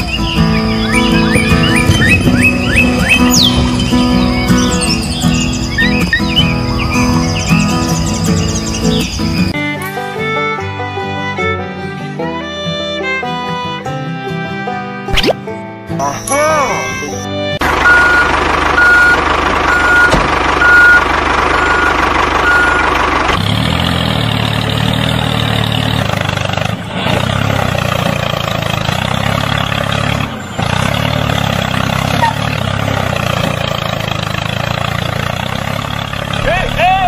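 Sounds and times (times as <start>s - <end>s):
tractor engine running: 0.0s - 10.4s, 16.2s - 37.0s
reversing beeper beeps: 16.0s - 21.0s, 21.6s - 22.9s.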